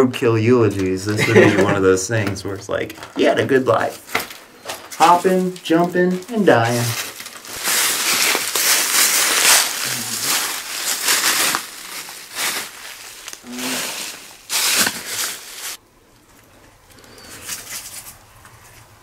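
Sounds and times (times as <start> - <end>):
footsteps crunching dry leaves: 3.8 - 15.8.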